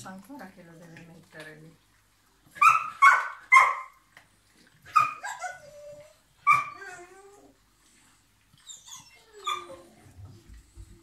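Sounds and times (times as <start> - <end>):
dog yelping and whining: 2.6 - 4.0, 4.8 - 7.6, 8.5 - 10.3.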